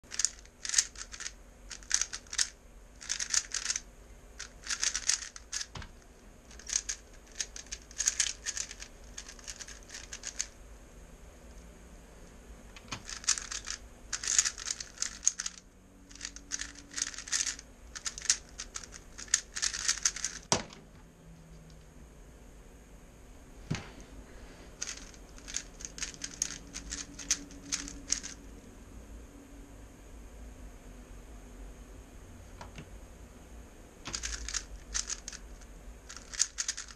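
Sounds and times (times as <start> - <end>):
puzzle cube clicking and rattling: 0.0 - 3.8, 4.4 - 10.6, 12.8 - 20.6, 24.8 - 28.4, 34.1 - 36.9.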